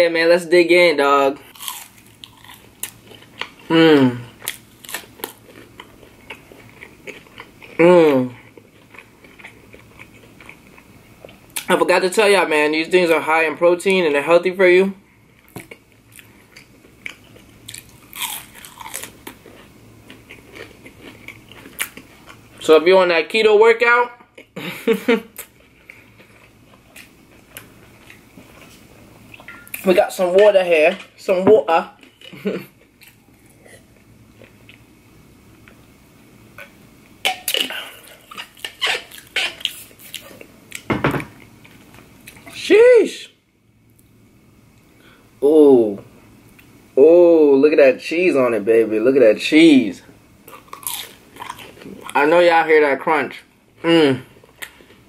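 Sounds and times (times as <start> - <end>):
crunchy chewing: 1.4 - 3.7, 4.3 - 11.7, 15.4 - 22.6, 36.6 - 40.9, 50.4 - 52.2.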